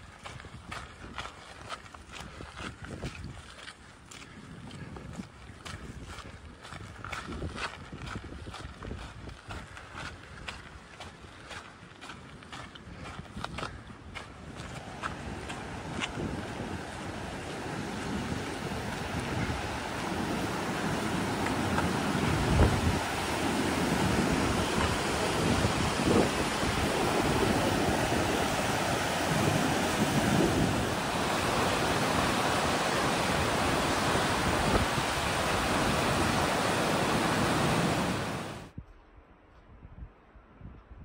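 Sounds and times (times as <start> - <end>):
wind gusts on microphone: 0.0 - 11.6, 12.2 - 41.0
whitewater rushing: 14.6 - 38.7.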